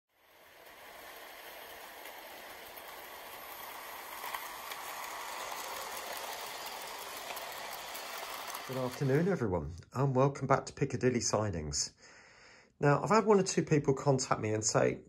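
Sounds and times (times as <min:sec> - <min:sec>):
model train rattling whirr: 0:00.1 - 0:09.5.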